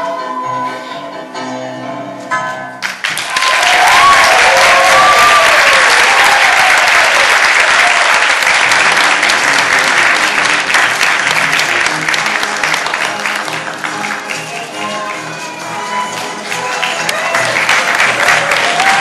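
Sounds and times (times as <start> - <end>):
audience applause: 2.9 - 19.0
whoops of cheering: 3.3 - 8.1, 18.2 - 19.0.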